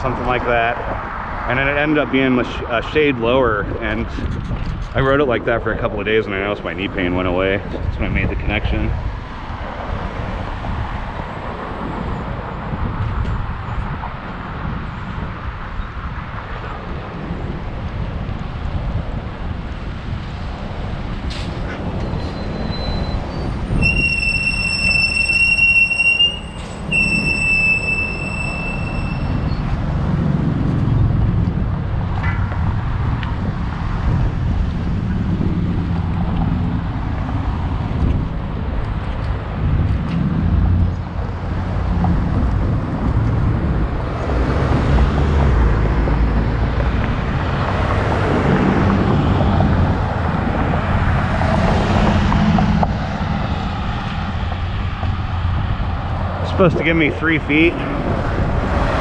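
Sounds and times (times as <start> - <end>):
bicycle road noise: 0.0 - 59.0
motor traffic passing: 0.0 - 59.0
wind rumbling on microphone: 0.0 - 59.0
long high-pitched tones: 23.8 - 29.5.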